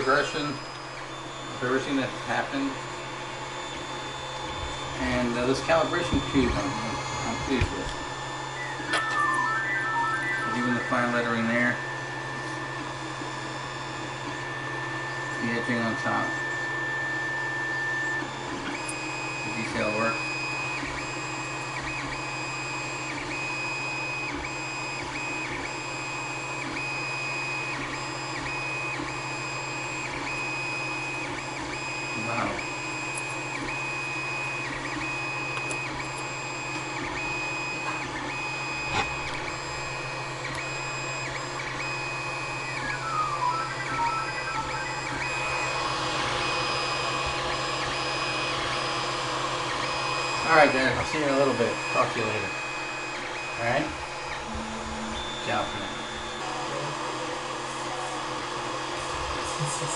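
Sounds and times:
stepper motor whine: 0.0s - 59.9s
falling notes: 8.5s - 10.9s.

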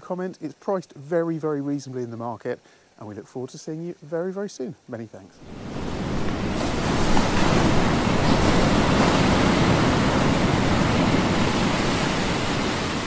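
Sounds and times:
surf breaking water: 5.4s - 13.0s.

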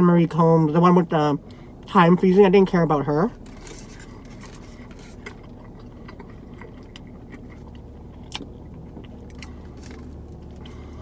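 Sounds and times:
low steady hum: 0.0s - 11.0s
person chewing food: 3.4s - 11.0s.

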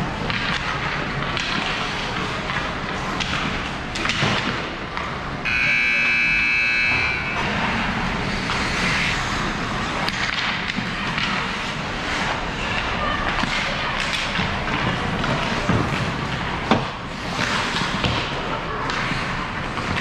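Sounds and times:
sticks and puck clattering: 0.1s - 5.2s, 7.6s - 20.0s
hockey rink buzzer: 5.5s - 7.4s
skates scraping on ice: 7.6s - 20.0s.

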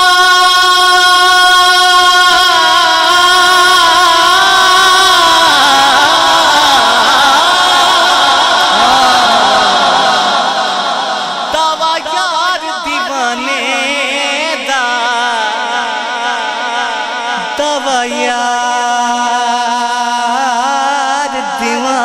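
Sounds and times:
man singing into a microphone: 0.0s - 22.0s.

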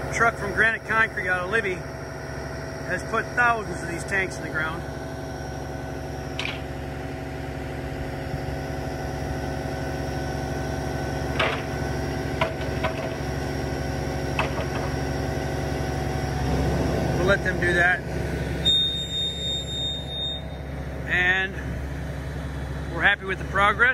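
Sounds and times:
truck engine running: 0.0s - 23.9s.

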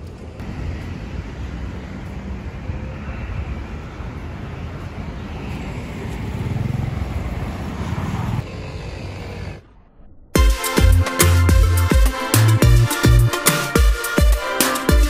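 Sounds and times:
low rumble of passing vehicles: 0.0s - 10.4s.

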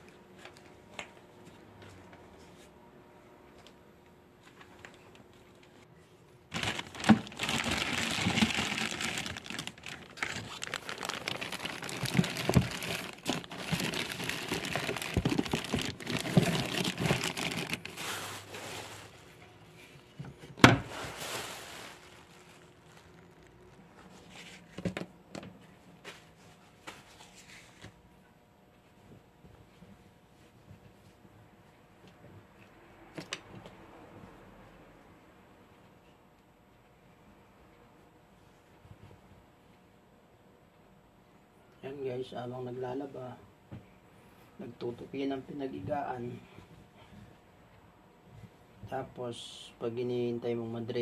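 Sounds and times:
plastic bag crinkling: 6.5s - 19.5s, 20.8s - 24.4s.

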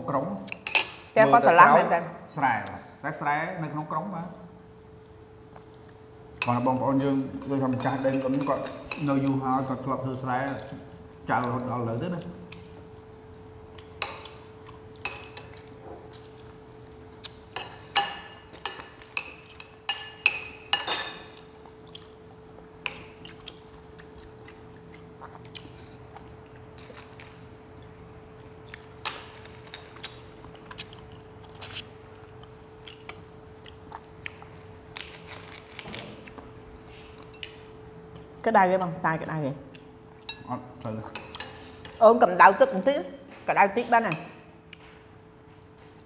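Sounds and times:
faint hum: 0.0s - 46.0s
chewing: 11.4s - 19.8s, 21.3s - 38.4s
spoons clinking on plates: 17.6s - 21.3s.

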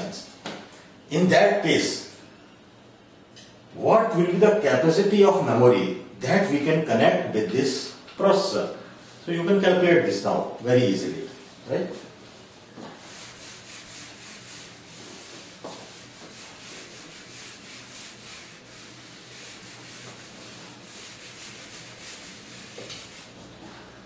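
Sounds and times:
duster rubbing on whiteboard: 12.3s - 23.7s.

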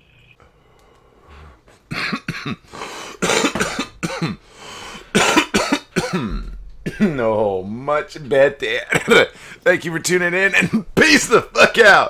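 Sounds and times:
man coughing hard: 1.9s - 4.4s, 5.1s - 7.3s, 8.9s - 9.3s.

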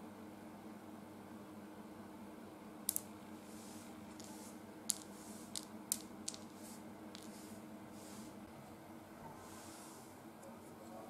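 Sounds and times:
faint steady hum: 0.0s - 11.0s
plastic blocks clicking on table: 2.9s - 3.1s, 4.1s - 7.4s.

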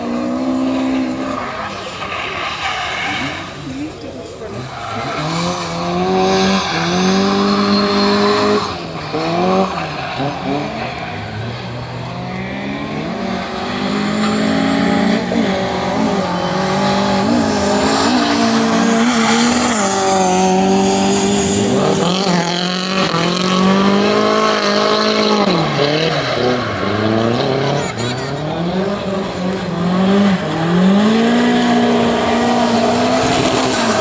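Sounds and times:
car engine revving: 0.0s - 34.0s.

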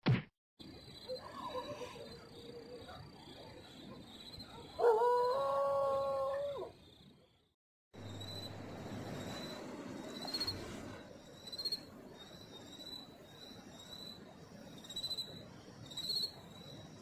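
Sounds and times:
dog howling: 4.8s - 6.8s.

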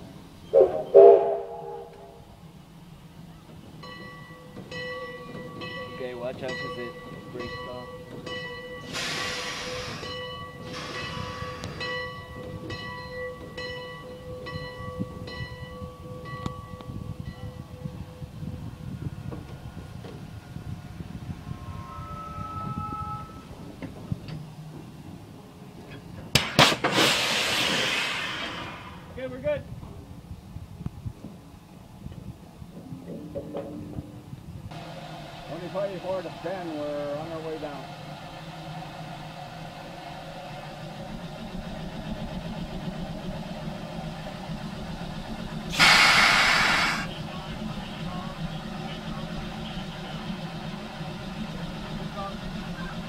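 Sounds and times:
steam locomotive low hum: 0.0s - 53.0s
loud rush of air: 8.8s - 11.8s, 26.6s - 29.3s, 45.7s - 47.1s
loud steam hiss: 8.8s - 12.0s, 26.6s - 29.2s, 34.8s - 40.0s, 45.6s - 47.7s.

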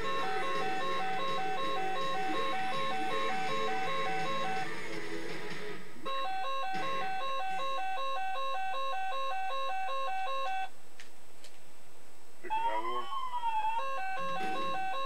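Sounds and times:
toy playing beeping tune: 0.0s - 4.7s, 6.0s - 10.7s, 12.5s - 15.0s
warbling siren-like sliding tone: 12.5s - 15.0s.

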